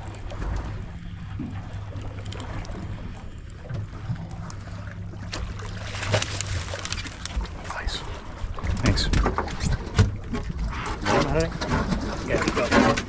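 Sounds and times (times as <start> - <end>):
fish splashing at the surface: 5.1 - 7.6.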